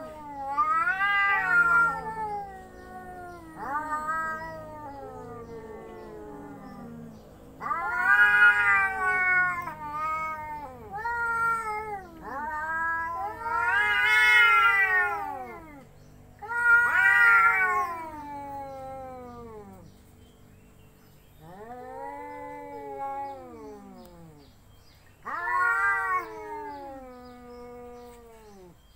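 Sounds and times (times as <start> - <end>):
cats yowling: 0.0 - 20.0, 21.4 - 28.8.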